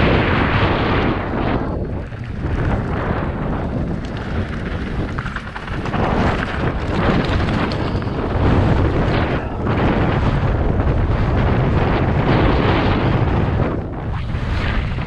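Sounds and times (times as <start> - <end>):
wind buffeting microphone: 0.0 - 15.0
tyres crunching over gravel: 2.0 - 9.1.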